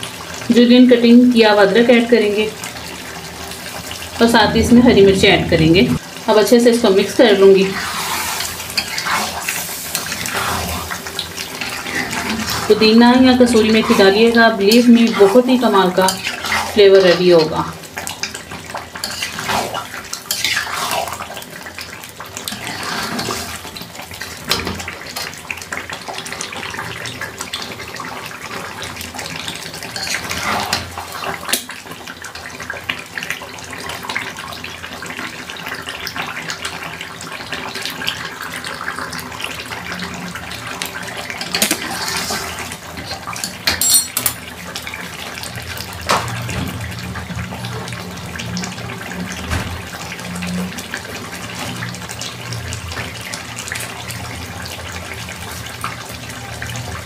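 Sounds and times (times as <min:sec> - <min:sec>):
gravy simmering and sizzling: 0:00.0 - 0:57.0
metal spatula scraping pan: 0:07.7 - 0:11.0.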